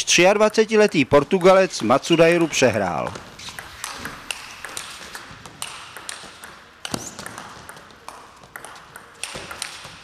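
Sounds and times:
table tennis ball clicking: 3.4 - 10.0.

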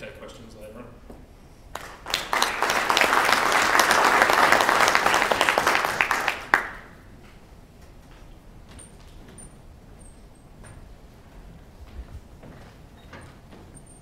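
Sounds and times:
audience applauding: 1.7 - 7.0.

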